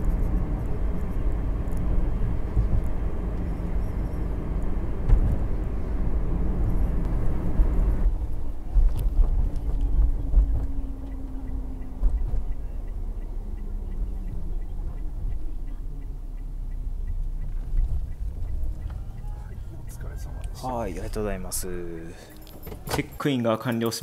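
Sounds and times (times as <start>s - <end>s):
car engine and tyre rumble: 0.0s - 23.4s
faint regular ticking: 8.0s - 24.0s.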